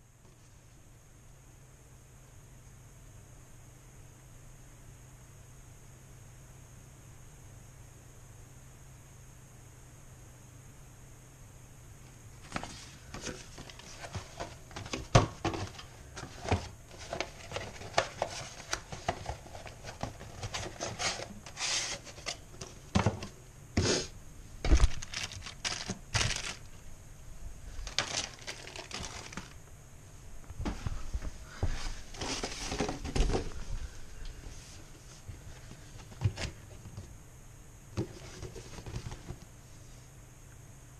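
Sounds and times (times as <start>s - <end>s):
plastic packaging crinkling: 24.6s - 26.8s, 27.8s - 29.6s.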